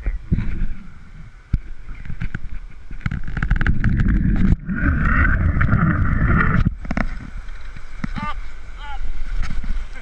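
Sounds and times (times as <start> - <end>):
wind buffeting microphone: 0.0 - 8.4
rushing white water: 3.6 - 10.0.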